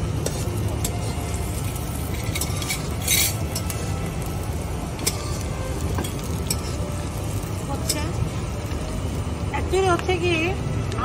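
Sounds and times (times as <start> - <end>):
utensil scraping metal pan: 2.1 - 3.7.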